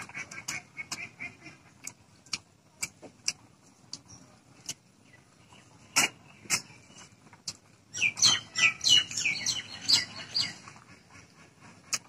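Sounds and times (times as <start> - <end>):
person chewing food: 0.4 - 4.8.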